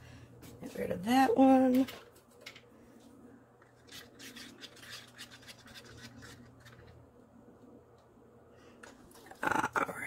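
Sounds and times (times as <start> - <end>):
stick scraping inside a cup: 3.7 - 7.0.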